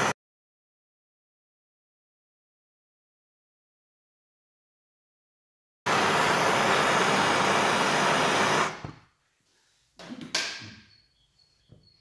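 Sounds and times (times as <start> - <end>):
blowtorch flame hissing: 5.9 - 9.0.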